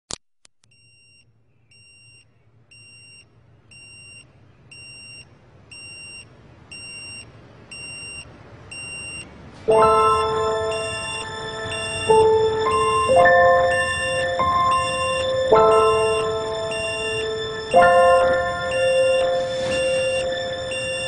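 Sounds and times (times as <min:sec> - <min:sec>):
alarm clock beeping: 0:04.8 - 0:21.0
chiming melody: 0:09.7 - 0:21.0.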